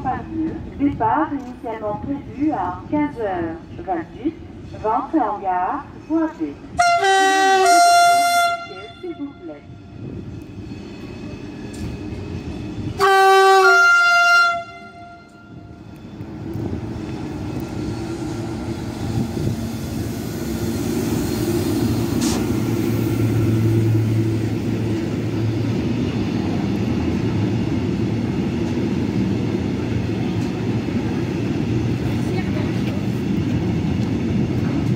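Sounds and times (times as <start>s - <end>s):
freight train rumbling past: 0.0s - 34.9s
two-note train horn: 6.7s - 9.8s, 13.0s - 15.8s.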